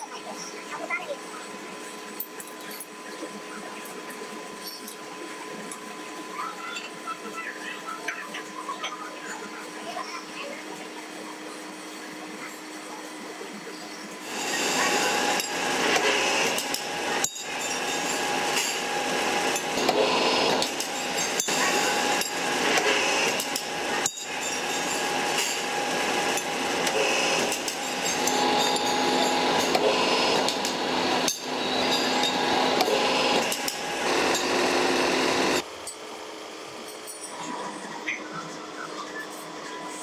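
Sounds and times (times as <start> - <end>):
machine hum: 13.5 - 36.7.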